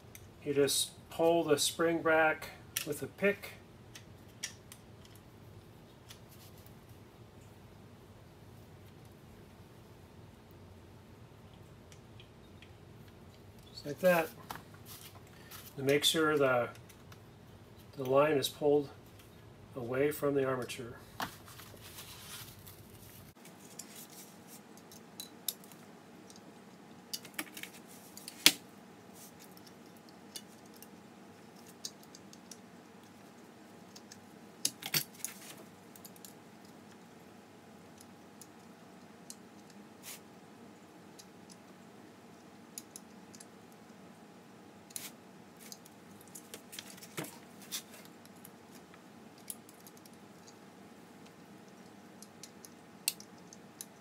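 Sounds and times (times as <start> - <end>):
faint steady hum: 0.0 - 54.0
small metallic clicks: 51.2 - 54.0.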